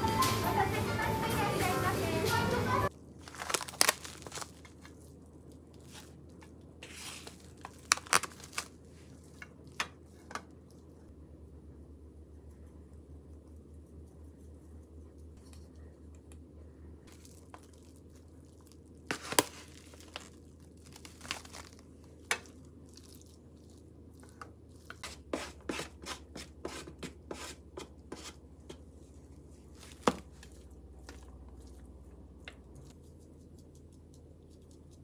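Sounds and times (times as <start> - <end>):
plastic trays crinkling: 3.2 - 5.0, 6.8 - 9.4, 19.1 - 22.5.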